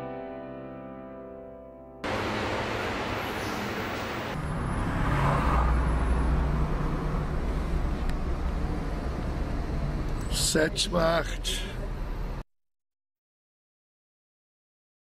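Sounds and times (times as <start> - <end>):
piano music: 0.0 - 4.3
car road and engine noise: 2.0 - 12.4.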